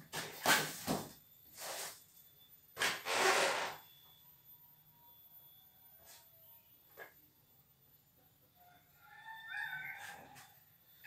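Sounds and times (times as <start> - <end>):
styrofoam and cardboard scraping: 0.0 - 2.0, 2.8 - 3.8.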